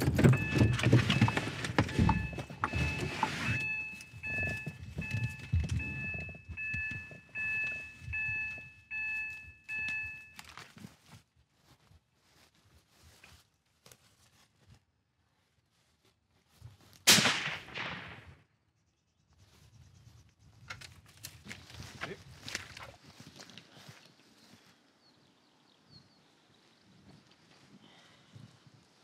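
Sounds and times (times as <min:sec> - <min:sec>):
vehicle warning chime dinging: 0:00.0 - 0:10.6
rustling: 0:00.0 - 0:17.1.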